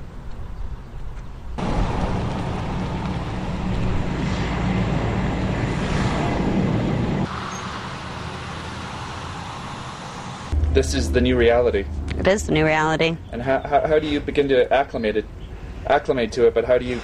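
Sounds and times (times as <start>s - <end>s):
car engine and tyre noise: 0.0s - 12.2s.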